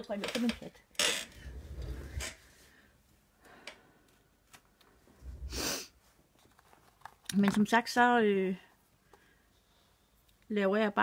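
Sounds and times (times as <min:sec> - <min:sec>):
person breathing out in puffs: 0:05.4 - 0:05.9.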